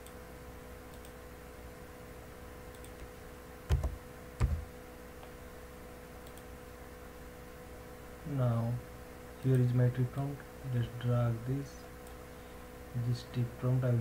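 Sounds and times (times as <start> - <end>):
steady electrical hum: 0.0 - 14.0
computer mouse clicks: 0.9 - 1.2, 2.7 - 3.1, 6.2 - 6.5.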